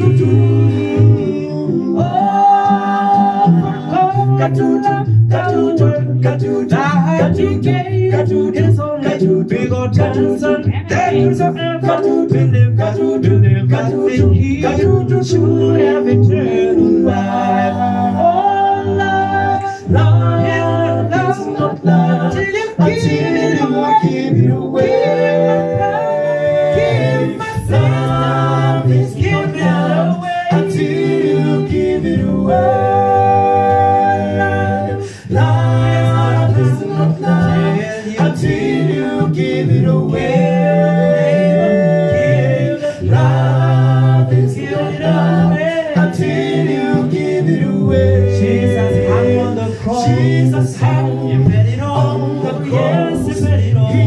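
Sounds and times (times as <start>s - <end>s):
male vocal group singing a cappella: 0.0s - 54.0s.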